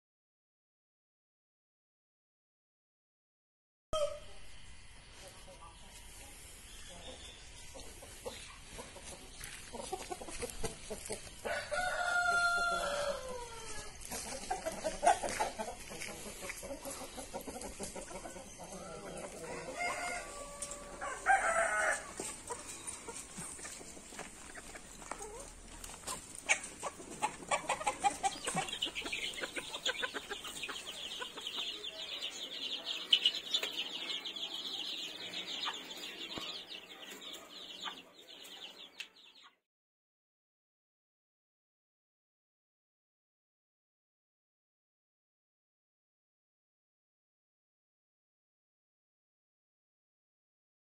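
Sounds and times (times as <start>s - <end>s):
chicks peeping: 5.1s - 11.5s, 12.2s - 39.6s
hens clucking: 5.2s - 39.3s
rooster crowing: 11.4s - 13.8s, 19.3s - 22.2s.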